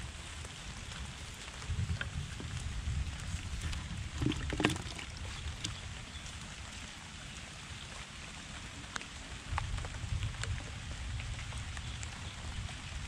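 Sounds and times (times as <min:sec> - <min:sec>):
steady rain: 0:00.0 - 0:04.2, 0:05.0 - 0:13.0
water running over concrete: 0:00.0 - 0:13.0
water drips clicking: 0:03.6 - 0:06.1.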